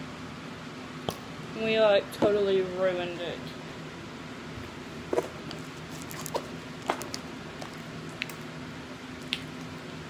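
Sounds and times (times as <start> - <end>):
slime wet clicks and pops: 9.2 - 9.5.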